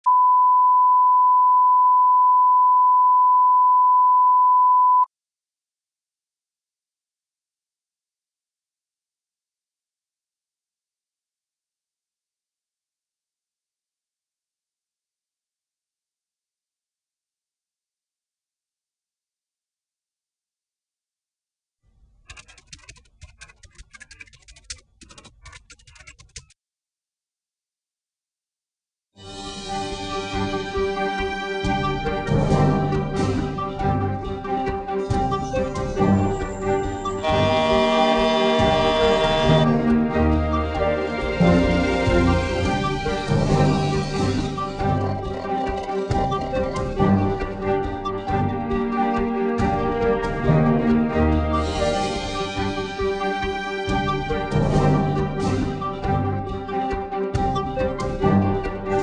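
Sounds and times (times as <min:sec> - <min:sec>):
steady reference tone beep: 0:00.1 - 0:05.1
keyboard keystroke clicks: 0:22.3 - 0:26.5.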